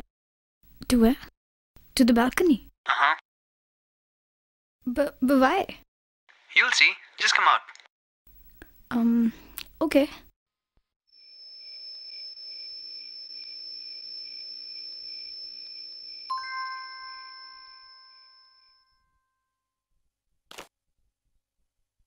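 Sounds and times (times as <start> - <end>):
bell-like chime: 11.3 - 19.8.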